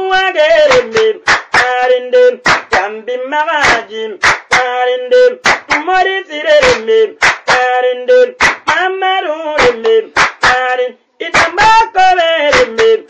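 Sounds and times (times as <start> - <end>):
person singing: 0.0 - 13.0
sharp hand claps: 0.6 - 1.8, 2.4 - 2.9, 3.6 - 4.7, 5.4 - 6.0, 6.6 - 7.8, 8.4 - 8.8, 9.6 - 10.7, 11.3 - 11.8, 12.5 - 13.0.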